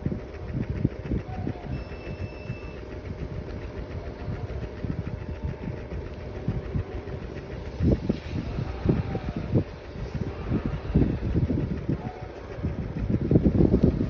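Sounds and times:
scooter motor humming: 0:00.0 - 0:14.0
wind buffeting microphone: 0:00.0 - 0:14.0.

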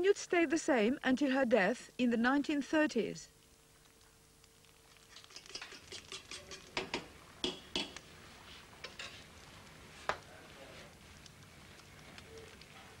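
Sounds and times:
metal utensils tapping bowls: 0:05.2 - 0:08.0.

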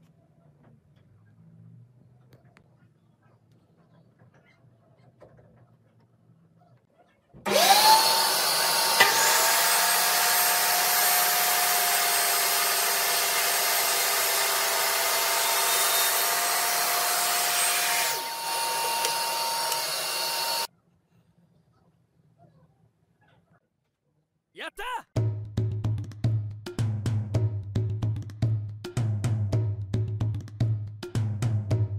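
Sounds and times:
vacuum running: 0:07.4 - 0:20.7
table saw ripping board: 0:07.5 - 0:20.7.

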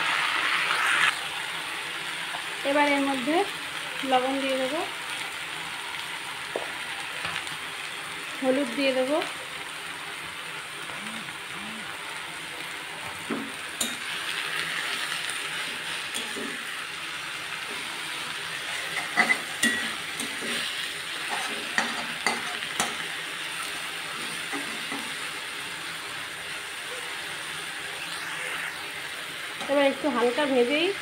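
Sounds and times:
leaves sizzling in hot oil: 0:00.0 - 0:31.0
spatula scraping and knocking pan: 0:18.7 - 0:23.1.

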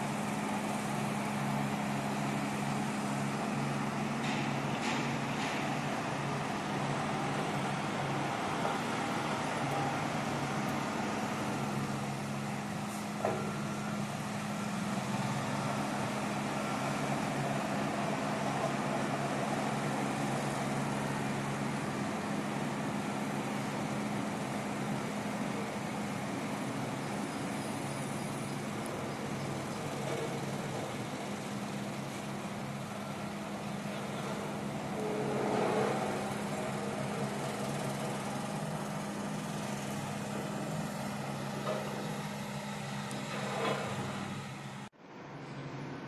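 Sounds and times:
heavy engine running: 0:00.0 - 0:46.0.

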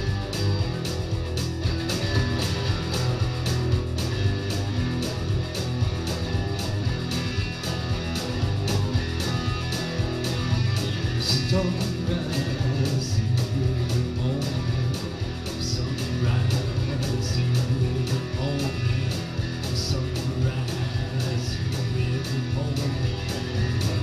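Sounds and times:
electric guitars playing rock: 0:00.0 - 0:24.0.

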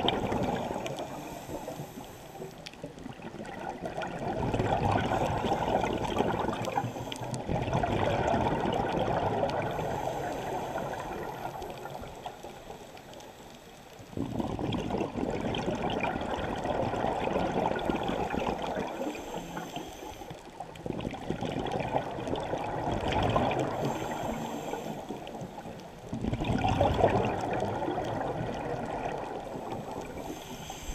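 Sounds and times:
underwater exhalation bubbles: 0:00.0 - 0:01.2, 0:03.0 - 0:06.8, 0:07.4 - 0:10.0, 0:14.2 - 0:19.0, 0:20.8 - 0:24.0, 0:26.1 - 0:30.1.

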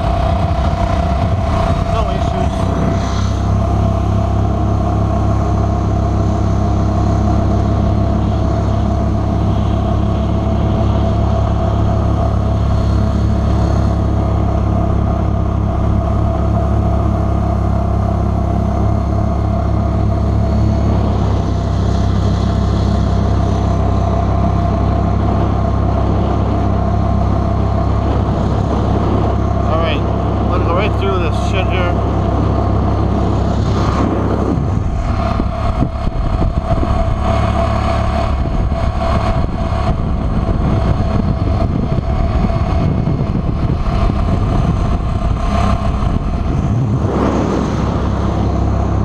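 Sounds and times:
boat motor running at speed: 0:00.0 - 0:49.0.

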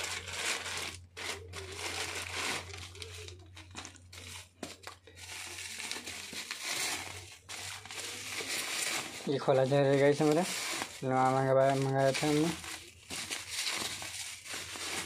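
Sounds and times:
bubble wrap crinkling: 0:00.0 - 0:15.0.

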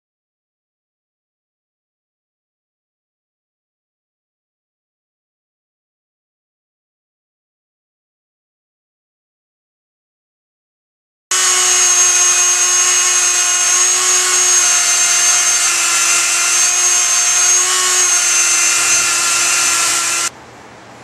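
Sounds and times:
rotary tool whining on wood: 0:11.3 - 0:20.3.

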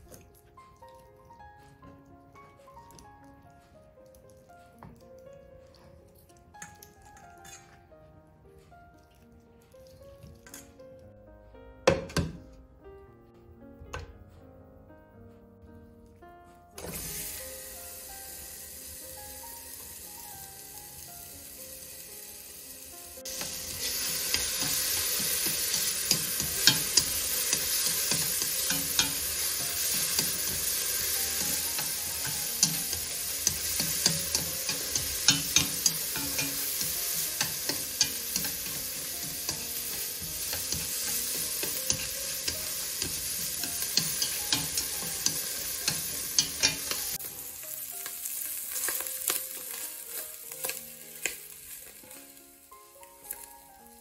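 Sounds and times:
food sizzling in a pot: 0:16.8 - 0:54.0
chopsticks ticking against pot: 0:24.4 - 0:47.1.

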